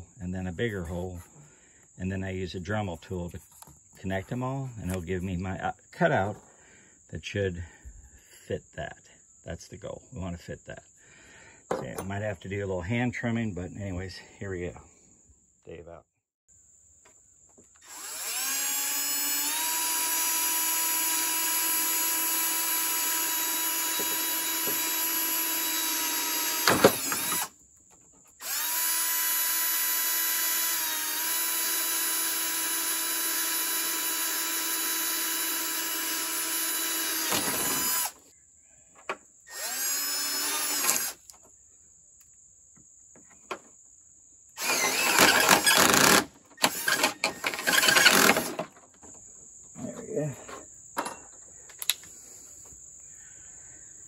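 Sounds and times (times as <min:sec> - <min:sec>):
cordless drill whine: 0:17.7 - 0:27.6, 0:28.4 - 0:38.2, 0:39.5 - 0:41.3, 0:44.6 - 0:48.6
drill bit cutting plastic: 0:17.8 - 0:27.6, 0:28.4 - 0:38.2, 0:39.5 - 0:41.3, 0:44.6 - 0:48.6.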